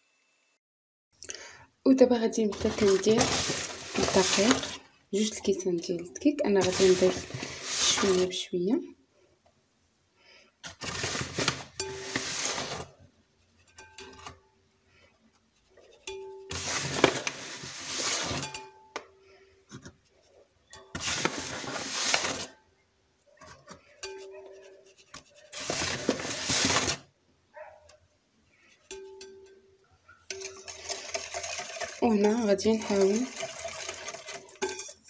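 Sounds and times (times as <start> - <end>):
sieve rasping and rattling: 2.3 - 5.4, 6.5 - 8.4, 10.6 - 13.0, 15.6 - 18.7, 20.9 - 22.6, 23.5 - 27.1, 30.3 - 35.0.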